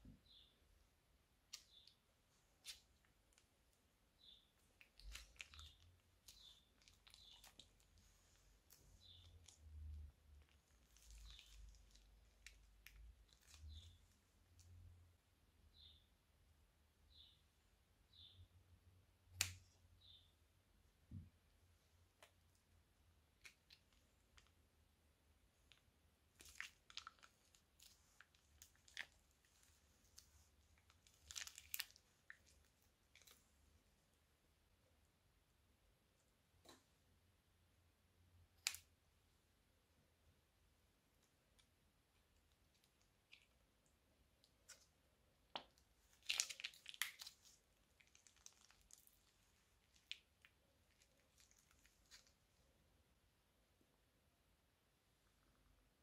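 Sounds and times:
slime crackling from piping bag: 10.4 - 14.0, 26.3 - 33.4, 46.0 - 52.4.

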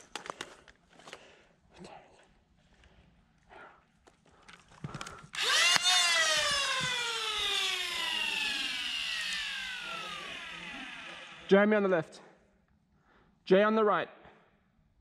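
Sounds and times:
sharp clicks: 4.9 - 7.5
foam dart blaster motor whining: 5.4 - 11.5.

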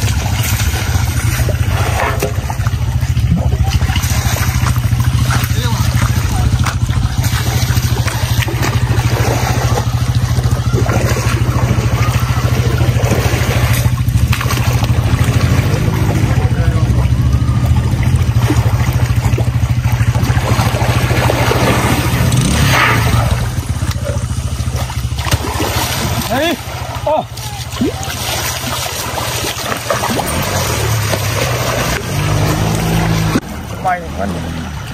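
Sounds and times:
low pulsing engine drone: 0.0 - 34.9
water splashing and sloshing: 0.0 - 34.9.

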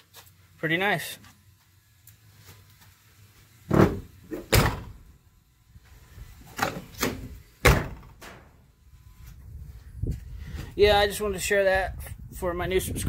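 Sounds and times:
car door clunking shut: 3.7 - 5.0, 6.6 - 8.4.

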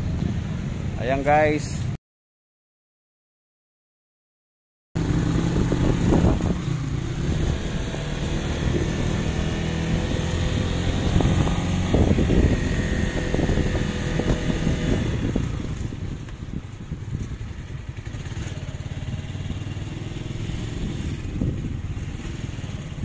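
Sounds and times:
motorcycle engine running: 5.0 - 23.0
wind noise on microphone: 5.0 - 23.0.

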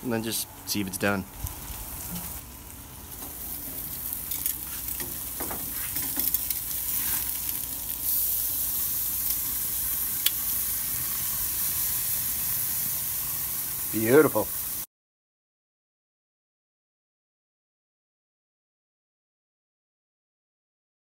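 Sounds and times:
steak sizzling on grill: 0.1 - 14.9.

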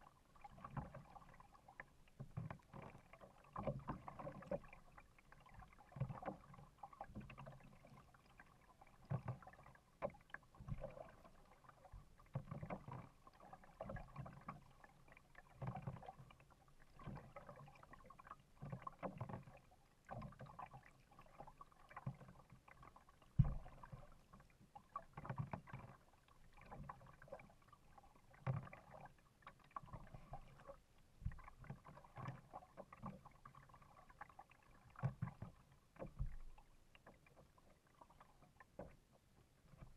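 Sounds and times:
kayak paddle strokes in water: 0.0 - 39.9.

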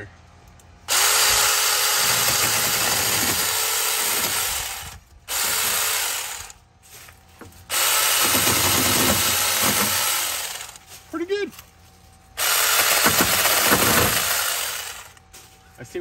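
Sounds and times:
mini chainsaw cutting branch: 0.9 - 6.6, 7.7 - 10.8, 12.4 - 15.2.

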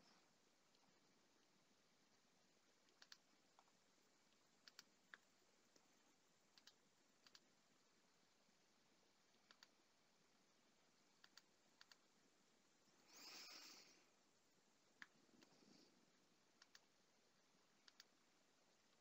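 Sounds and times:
computer mouse clicks: 2.8 - 3.8, 4.6 - 5.9, 6.5 - 7.5, 9.4 - 9.8, 11.2 - 12.1, 15.0 - 15.6, 16.6 - 16.9, 17.8 - 18.2.

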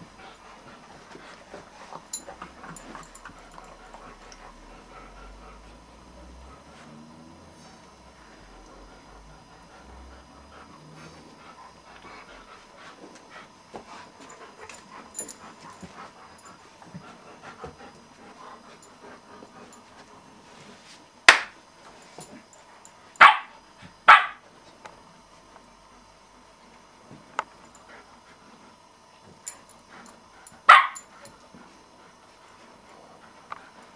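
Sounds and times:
dogs scuffling on a rug: 10.6 - 22.8
dog barking: 23.2 - 23.5, 24.1 - 24.4, 30.7 - 31.0.

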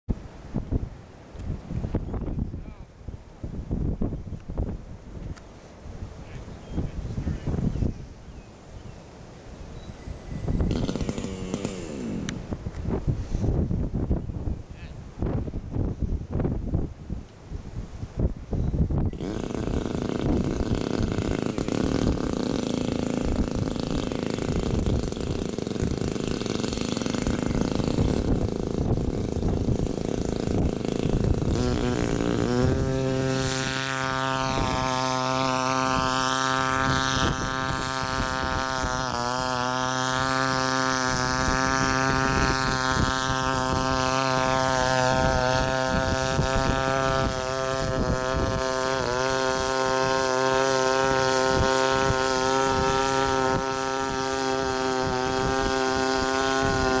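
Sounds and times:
propeller hum: 0.1 - 57.0
generator engine rumbling: 19.0 - 57.0.

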